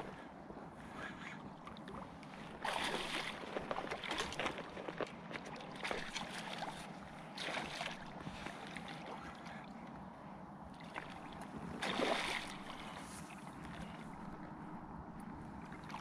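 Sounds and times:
fish splashing at water surface: 0:02.5 - 0:09.1, 0:10.9 - 0:14.1.

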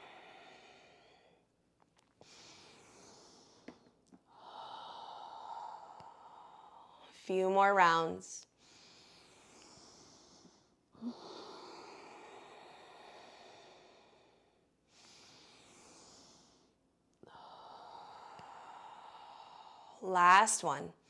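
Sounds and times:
person breathing through the nose: 0:02.2 - 0:07.1, 0:08.6 - 0:20.0.

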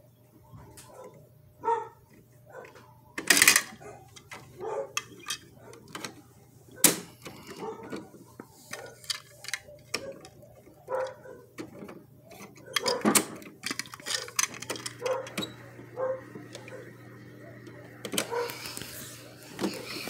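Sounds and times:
plastic toy clicks and clatter: 0:03.2 - 0:06.2, 0:08.6 - 0:10.4, 0:11.0 - 0:15.4.

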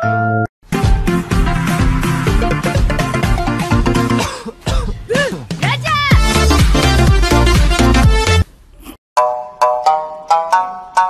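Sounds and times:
upbeat electronic music: 0:00.7 - 0:04.9, 0:05.5 - 0:08.4.

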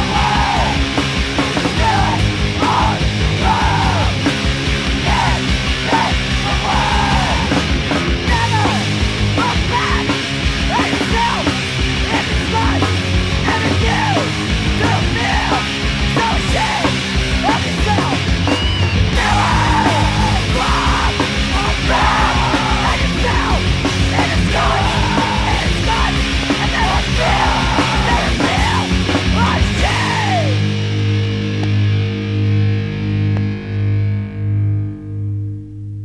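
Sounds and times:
person yelling vocals: 0:00.0 - 0:00.8, 0:01.7 - 0:04.2, 0:05.0 - 0:07.6, 0:08.3 - 0:11.5, 0:12.1 - 0:18.2, 0:19.0 - 0:30.6
fast drums: 0:00.0 - 0:31.0
distorted electric guitar: 0:00.0 - 0:36.0.

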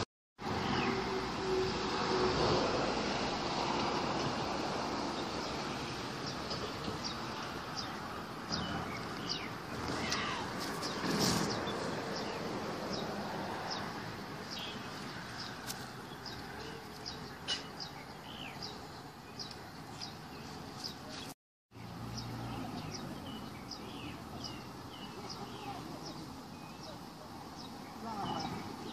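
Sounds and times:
outdoor background noise: 0:00.0 - 0:28.9
small birds chirping: 0:06.2 - 0:28.9.

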